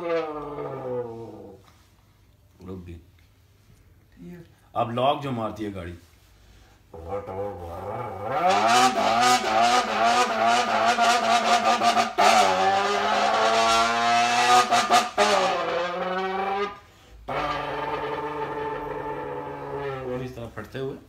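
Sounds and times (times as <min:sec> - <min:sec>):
man imitating revving engine: 0:07.0 - 0:16.7.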